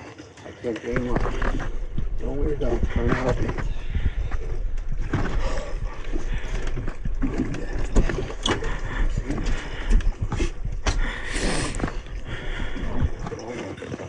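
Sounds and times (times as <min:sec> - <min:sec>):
wind rumbling on microphone: 0:00.8 - 0:13.6
hissing rush: 0:08.8 - 0:13.1.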